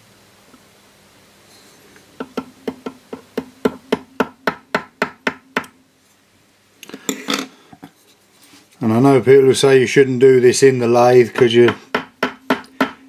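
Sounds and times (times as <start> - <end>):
rustle: 0.0 - 2.1, 8.0 - 8.9
small hammer tapping metal: 2.2 - 5.8, 11.3 - 13.0.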